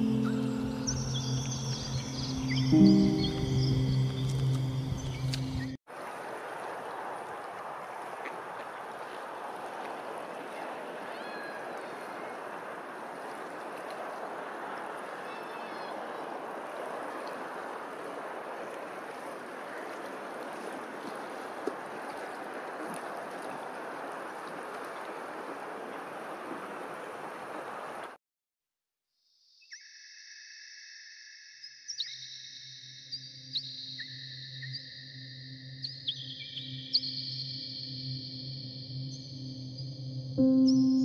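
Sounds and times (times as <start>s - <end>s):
faint high bird chirps: 0.0s - 5.8s, 29.5s - 41.0s
water rushing and lapping: 0.0s - 28.2s.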